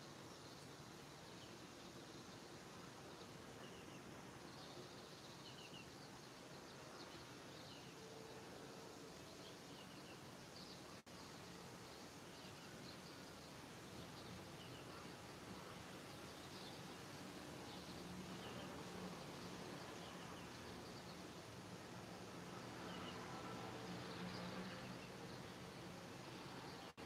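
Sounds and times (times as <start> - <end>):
small birds chirping: 9.2 - 23.3.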